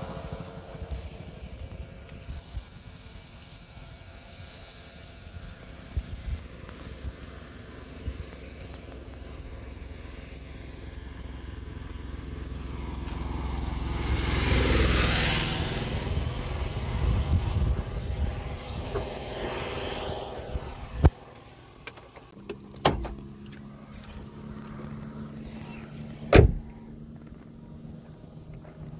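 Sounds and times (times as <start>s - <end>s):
vehicle tyres hissing on wet road: 0.0s - 20.4s
car door opening clack: 21.9s - 23.2s, 26.3s - 26.7s.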